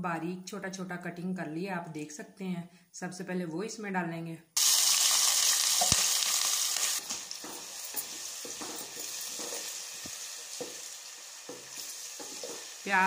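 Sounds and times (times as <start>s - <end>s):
onions sizzling in a pot: 4.6s - 13.0s
wooden spoon scraping a pot: 7.0s - 13.0s.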